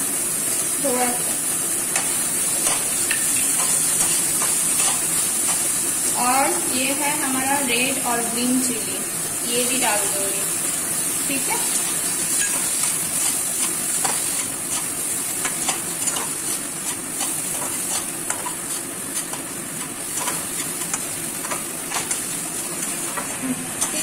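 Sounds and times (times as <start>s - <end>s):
vegetables sizzling in hot oil: 0.0s - 24.0s
spatula scraping and tapping pan: 1.9s - 5.7s, 12.3s - 24.0s.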